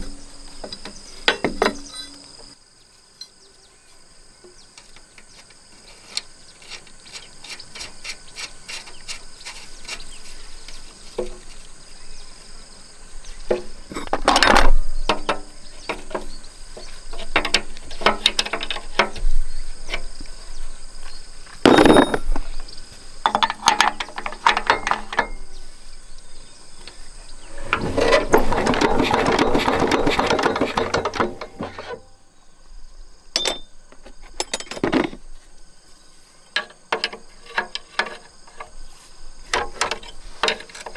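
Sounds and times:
dense rattling noise: 27.4s - 31.9s.

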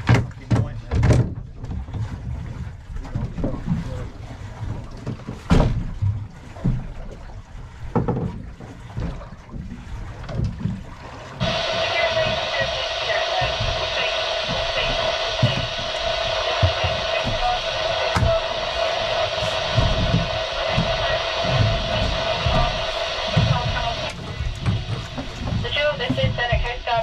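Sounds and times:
water against boat hull: 0.0s - 27.0s
steady hiss with held tone: 11.4s - 26.5s
wind on microphone: 11.4s - 27.0s.

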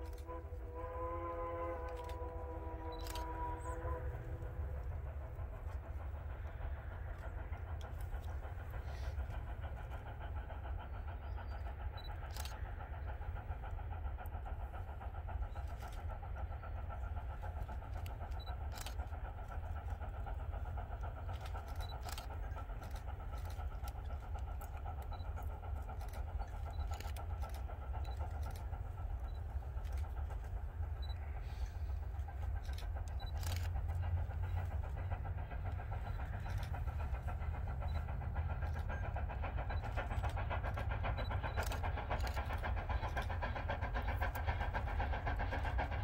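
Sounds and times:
steam locomotive chuffing: 0.0s - 46.0s
sharp clicks: 32.2s - 46.0s.

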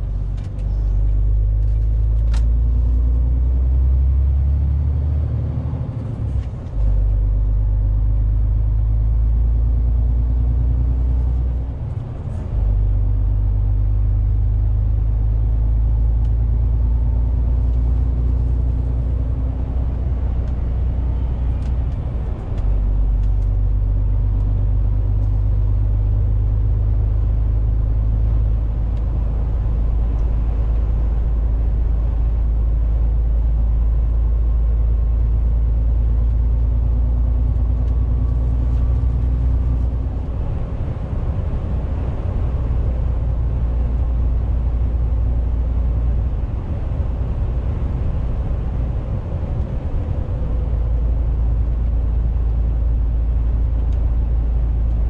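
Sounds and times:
diesel engine drone: 0.0s - 55.0s
road noise: 0.0s - 55.0s.

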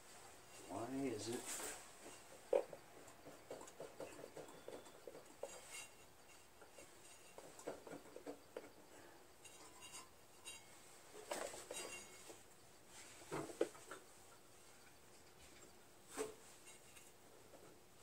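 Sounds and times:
short rustle: 0.0s - 2.4s
small clicks and metal clinks: 2.1s - 12.6s, 16.6s - 17.8s.

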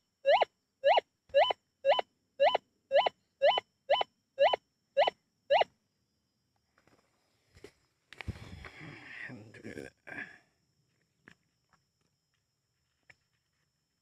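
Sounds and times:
metal detector rising chirps: 0.3s - 5.7s.

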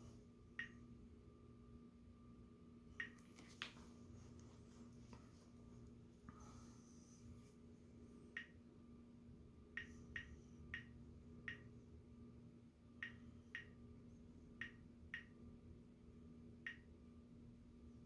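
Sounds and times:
geiger counter clicking: 9.8s - 11.7s, 13.0s - 13.8s, 14.6s - 15.4s, 16.6s - 16.9s.

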